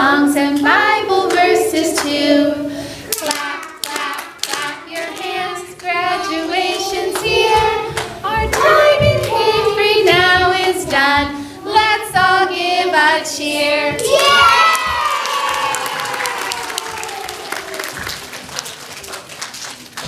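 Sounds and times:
young children singing: 0:00.0 - 0:18.2
hand claps: 0:03.1 - 0:05.3, 0:14.1 - 0:20.0.

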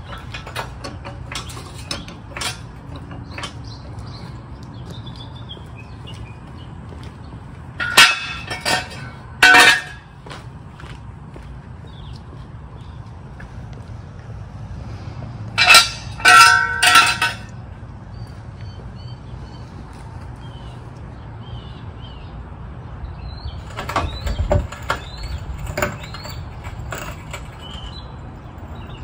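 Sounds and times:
metallic clanks with ring: 0:07.8 - 0:10.2, 0:15.6 - 0:17.6, 0:23.6 - 0:28.1.

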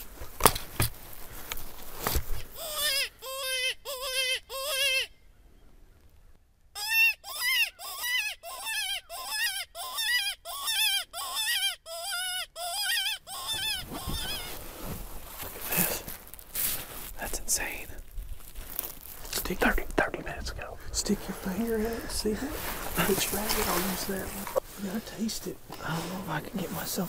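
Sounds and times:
predator call distress cries: 0:02.6 - 0:05.1, 0:06.8 - 0:14.6.

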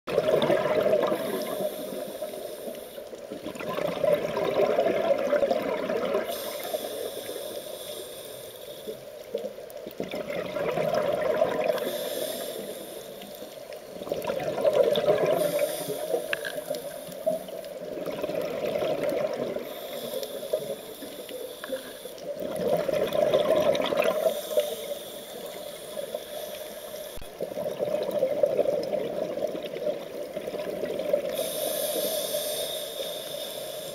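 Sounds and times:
exhaled bubbles gurgling: 0:00.1 - 0:07.5, 0:09.3 - 0:32.2
regulator inhale hiss: 0:00.8 - 0:03.3, 0:06.1 - 0:09.7, 0:11.6 - 0:14.1, 0:15.0 - 0:18.0, 0:19.0 - 0:22.7, 0:24.0 - 0:27.6, 0:31.0 - 0:33.9.

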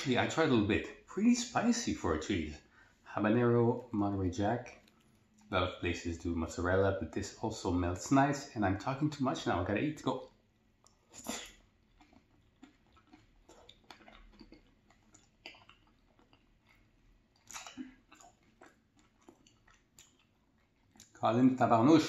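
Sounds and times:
chewing mouth clicks: 0:04.6 - 0:05.5, 0:10.2 - 0:21.2.

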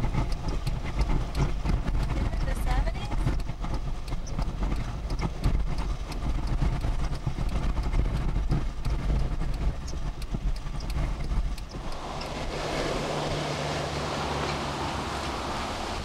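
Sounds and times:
storm wind rumbling: 0:00.0 - 0:16.0
sharp clicks and taps: 0:00.2 - 0:12.3.

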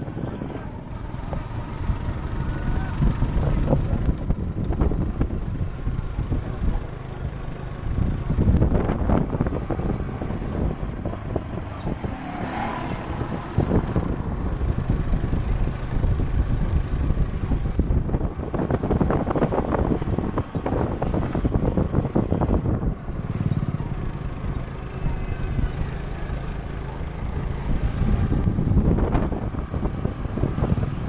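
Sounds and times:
motorcycle engine: 0:00.0 - 0:31.0
ride rumble and rattle: 0:00.0 - 0:31.0
wind buffeting microphone: 0:00.0 - 0:31.0.

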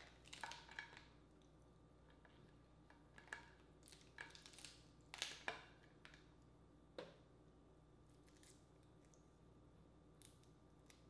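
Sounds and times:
crab shell cracking: 0:03.8 - 0:05.5.

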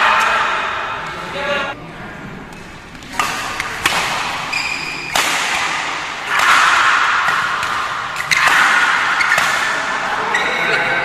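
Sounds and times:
racket hitting shuttlecock: 0:02.5 - 0:10.4
shoe squeak on court floor: 0:04.5 - 0:05.1, 0:10.2 - 0:11.0.

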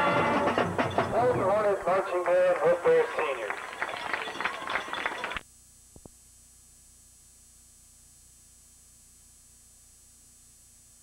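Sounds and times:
faint hum and hiss: 0:05.4 - 0:11.0.

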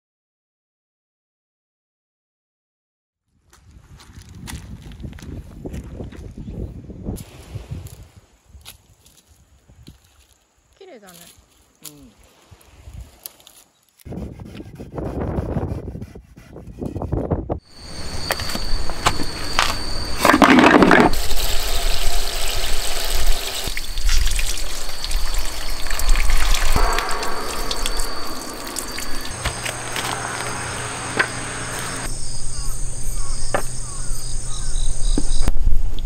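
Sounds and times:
handsaw cutting wood: 0:14.1 - 0:17.1
hose spraying water: 0:19.1 - 0:32.1.

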